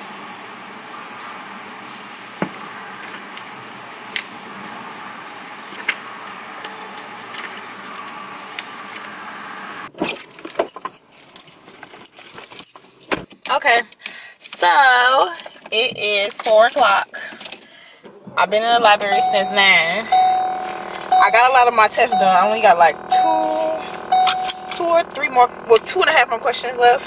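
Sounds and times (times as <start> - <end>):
keys jangling: 10.3 - 13.2.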